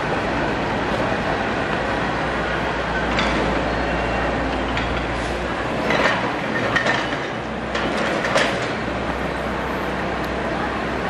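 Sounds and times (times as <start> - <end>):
train wheels rumbling on rails: 0.0 - 11.0
metallic clanks of train wheels: 3.0 - 3.7, 4.5 - 8.8.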